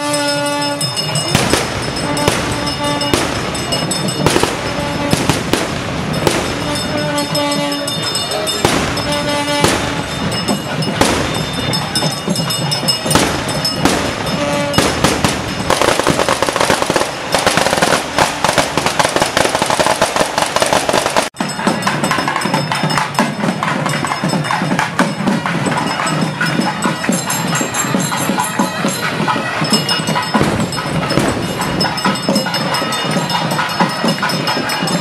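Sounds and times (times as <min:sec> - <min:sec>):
drumming: 0:00.0 - 0:35.0
loud festival music: 0:00.0 - 0:35.0
firecrackers crackling: 0:00.1 - 0:22.3, 0:29.8 - 0:35.0.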